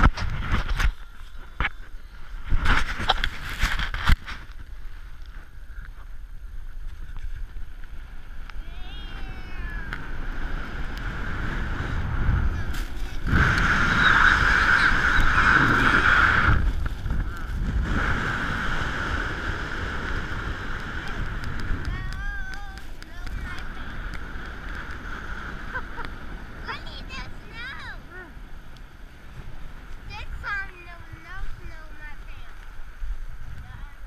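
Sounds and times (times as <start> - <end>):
snow tube sliding on snow: 0.0 - 34.0.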